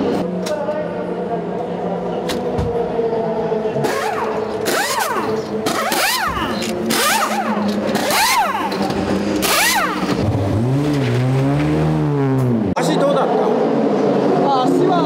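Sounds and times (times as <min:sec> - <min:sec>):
pneumatic wheel gun whining: 0:03.8 - 0:10.2.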